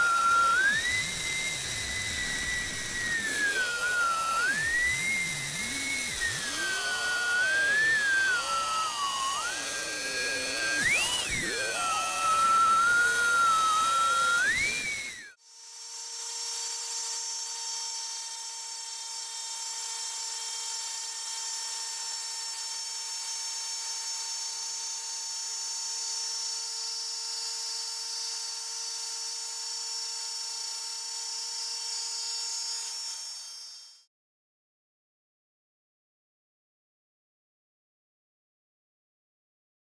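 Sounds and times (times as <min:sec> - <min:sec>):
thin high machine whine: 0:00.0 - 0:15.4
router motor whine cutting wood: 0:00.0 - 0:34.1.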